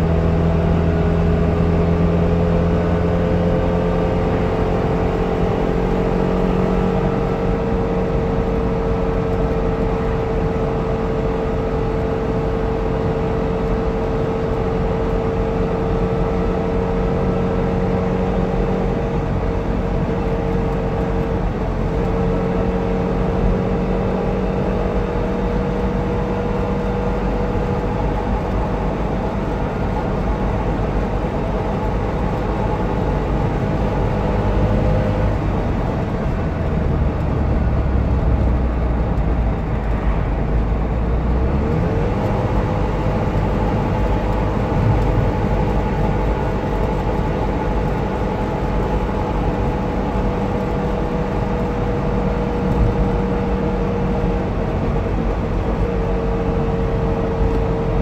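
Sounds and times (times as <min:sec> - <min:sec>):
road noise: 0:00.0 - 0:58.0
two-stroke car engine running: 0:00.0 - 0:58.0.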